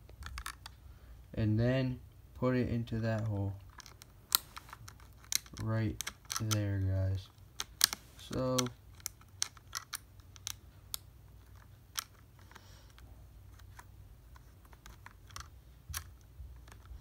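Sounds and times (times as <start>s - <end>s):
faint low hum: 0.0s - 17.0s
screw and hard plastic clicking: 3.2s - 6.6s, 7.3s - 17.0s.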